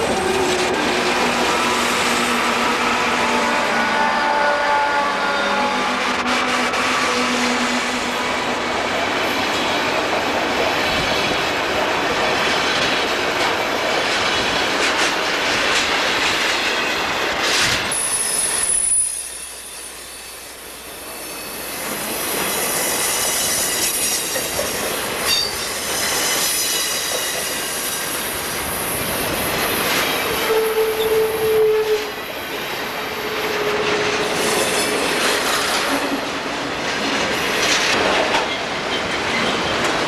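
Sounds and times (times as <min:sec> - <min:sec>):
freight train passing: 0:00.0 - 0:40.0
train wheel squeal: 0:16.5 - 0:29.1, 0:29.7 - 0:32.4, 0:33.1 - 0:36.2.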